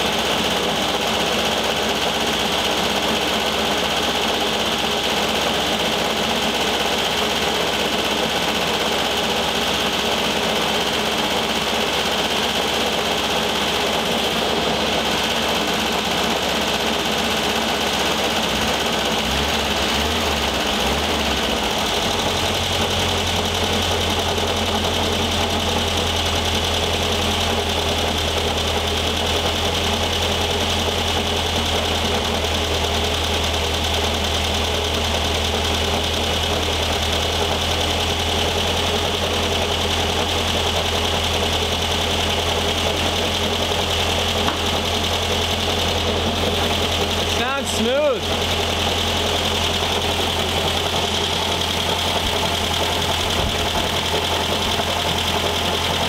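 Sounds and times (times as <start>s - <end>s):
car engine running: 0.0s - 56.0s
engine cooling fan noise: 46.6s - 56.0s.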